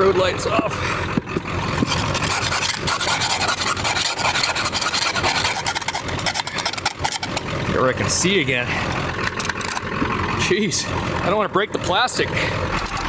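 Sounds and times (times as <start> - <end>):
brush scrubbing ice off plastic: 1.7 - 7.5.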